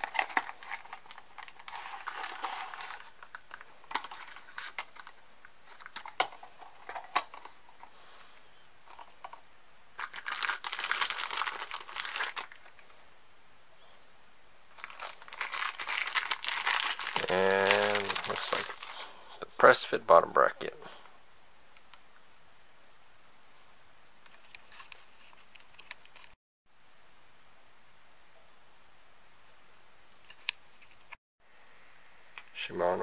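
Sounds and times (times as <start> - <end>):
plastic bags crinkling: 0.0 - 7.6, 9.9 - 12.9, 14.7 - 19.0.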